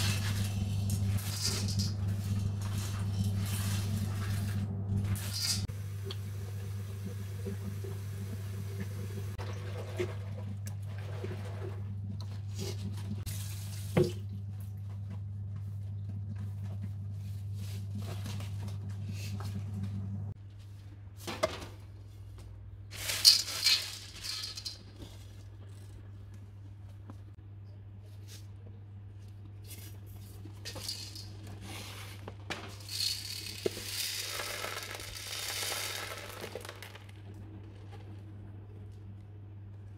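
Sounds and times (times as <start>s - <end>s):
low hum: 0.0s - 13.2s, 14.2s - 20.4s
water running in sink: 0.0s - 14.7s.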